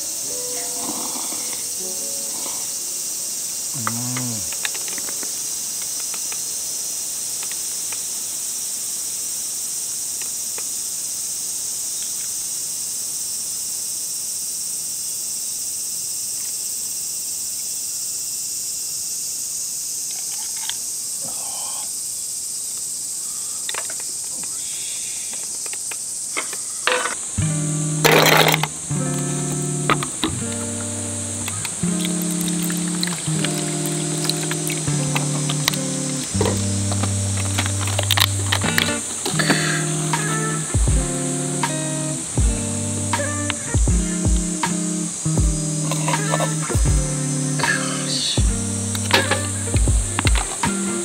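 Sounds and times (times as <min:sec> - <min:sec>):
chorus of insects: 0:00.0 - 0:51.0
short falling vocal sound: 0:03.8 - 0:04.6.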